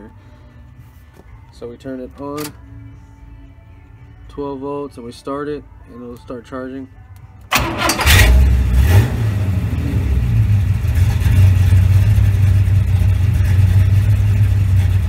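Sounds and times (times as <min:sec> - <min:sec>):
car engine starting and idling: 0:07.5 - 0:15.0.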